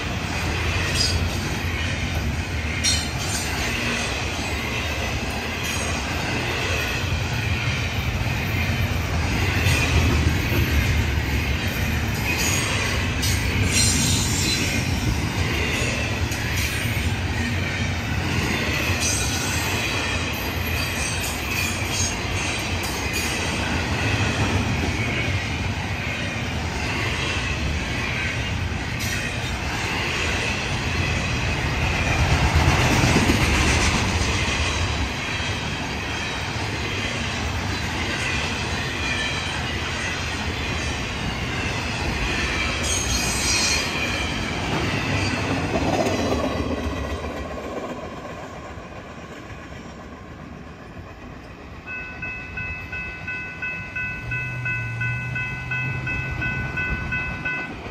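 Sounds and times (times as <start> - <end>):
train wheels rumbling on rails: 0.0 - 57.9
crossing warning bell ringing: 9.6 - 25.5, 51.8 - 57.9.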